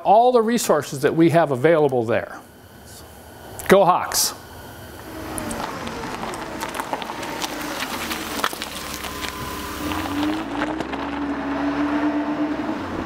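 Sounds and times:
steady tone: 0:00.7 - 0:13.0
vehicle engine running: 0:04.9 - 0:13.0.

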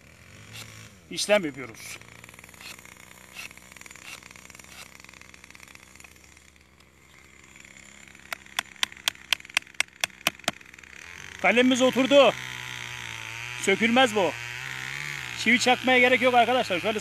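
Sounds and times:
faint scraping of bark: 0:00.4 - 0:05.0
sharp taps: 0:08.3 - 0:10.6.

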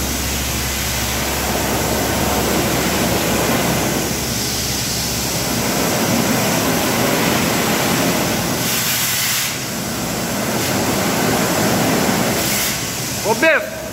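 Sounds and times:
bright hiss: 0:00.0 - 0:13.6
concrete spraying from hose nozzle: 0:02.8 - 0:09.7, 0:10.4 - 0:13.4.

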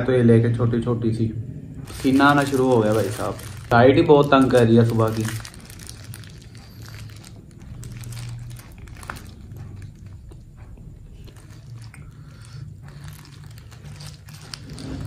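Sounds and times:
paper wrapper crinkling: 0:01.8 - 0:10.2, 0:11.2 - 0:15.0
close chewing and biting: 0:05.3 - 0:15.0.

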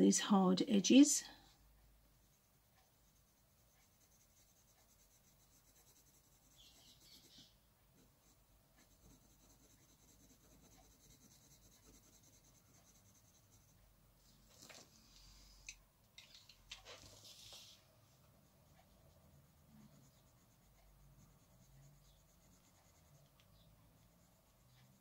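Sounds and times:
pencil scratching on paper: 0:02.1 - 0:14.0, 0:17.1 - 0:25.0.

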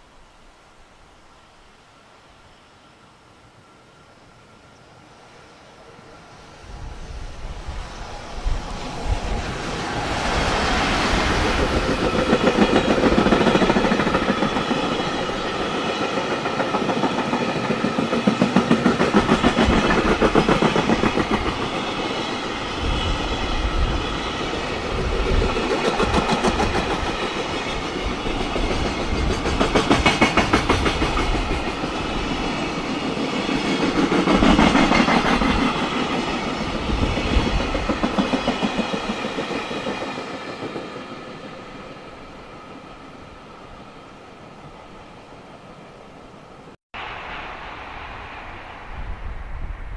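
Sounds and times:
train wheels clacking over rail joints: 0:10.0 - 0:22.1, 0:25.2 - 0:32.0.

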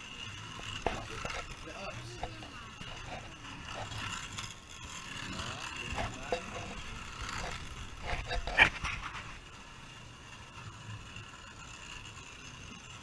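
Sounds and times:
slot cars whirring: 0:00.0 - 0:13.0
clicking and rattling: 0:00.1 - 0:09.4.

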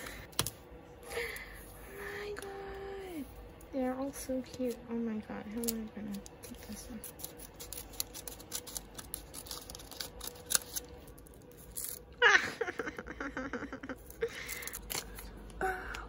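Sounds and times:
scissors snipping paper: 0:05.5 - 0:12.0, 0:14.0 - 0:15.6
paper crinkling: 0:05.5 - 0:12.1.

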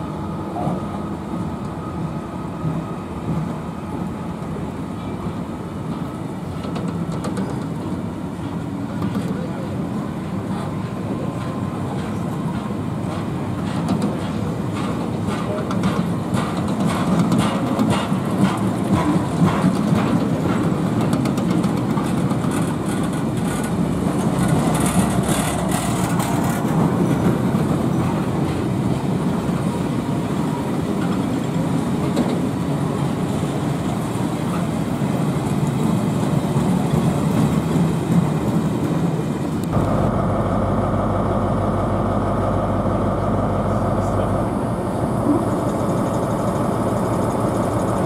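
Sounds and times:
train wheels rumbling on rails: 0:00.0 - 0:48.0
wheels clicking over rail joints: 0:10.5 - 0:29.7
diesel engine idling: 0:39.7 - 0:48.0.

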